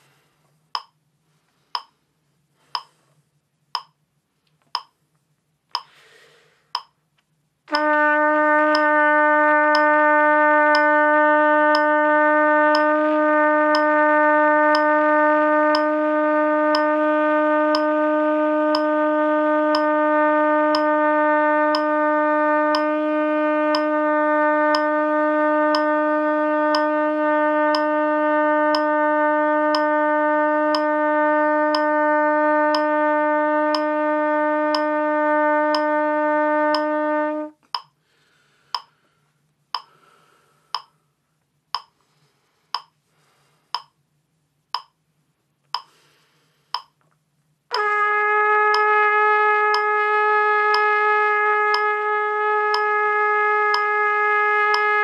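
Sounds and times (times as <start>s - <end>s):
metronome clicking: 0.8s - 1.0s, 1.8s - 2.0s, 2.7s - 3.0s, 3.7s - 4.0s, 4.6s - 5.0s, 5.7s - 6.0s, 6.8s - 7.0s, 8.7s - 9.0s, 9.7s - 10.0s, 10.7s - 11.0s, 11.7s - 12.0s, 12.7s - 13.0s, 13.7s - 14.0s, 14.7s - 15.0s, 15.7s - 16.0s, 16.7s - 17.0s, 17.7s - 18.0s, 18.7s - 19.0s, 19.7s - 20.0s, 20.7s - 21.0s, 21.7s - 22.0s, 22.7s - 22.9s, 23.7s - 24.0s, 24.7s - 25.0s, 25.7s - 26.0s, 26.7s - 27.0s, 27.7s - 28.0s, 28.7s - 29.0s, 29.7s - 30.0s, 30.7s - 31.0s, 31.7s - 32.0s, 32.7s - 33.0s, 33.7s - 34.0s, 34.7s - 34.9s, 35.7s - 36.0s, 36.7s - 37.0s, 37.6s - 38.0s, 38.7s - 39.0s, 39.8s - 40.0s, 40.8s - 41.0s, 41.7s - 42.0s, 42.7s - 43.0s, 43.7s - 44.0s, 44.7s - 45.0s, 45.7s - 46.0s, 46.7s - 47.0s, 48.7s - 49.0s, 49.7s - 50.0s, 50.7s - 51.0s, 51.7s - 52.0s, 52.7s - 53.0s, 53.7s - 54.0s, 54.7s - 55.0s
trumpet holding a long note: 7.7s - 37.6s, 47.7s - 55.0s.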